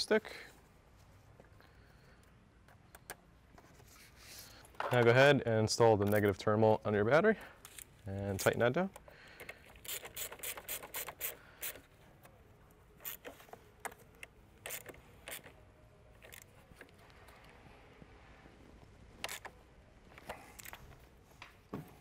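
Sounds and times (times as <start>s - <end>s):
socket ratchet clicking: 9.0s - 11.9s, 13.0s - 15.6s.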